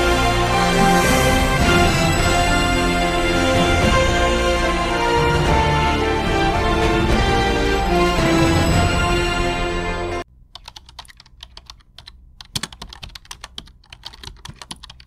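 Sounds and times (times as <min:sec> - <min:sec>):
news theme music: 0:00.0 - 0:10.3
keyboard typing clicks: 0:10.5 - 0:15.0.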